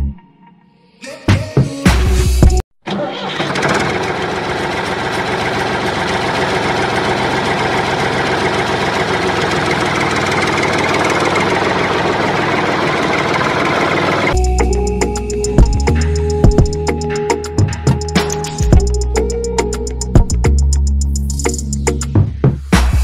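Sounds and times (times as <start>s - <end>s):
tractor engine running: 2.8s - 20.7s.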